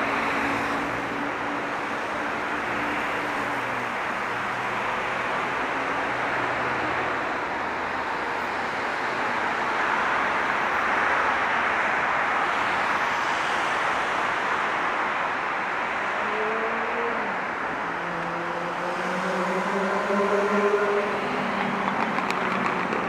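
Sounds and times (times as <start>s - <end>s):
city road traffic: 0.0s - 23.0s.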